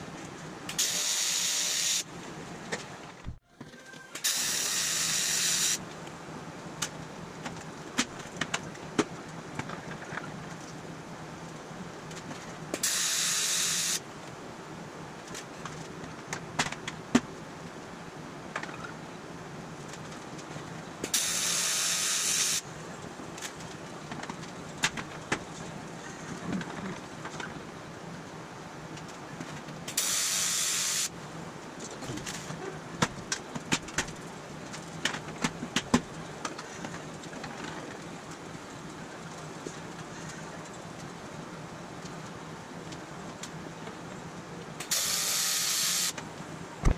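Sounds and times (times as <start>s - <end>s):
loud hiss of spraying air: 0.7s - 2.1s, 4.2s - 5.8s, 12.8s - 14.0s, 21.1s - 22.6s, 30.0s - 31.1s, 44.8s - 46.2s.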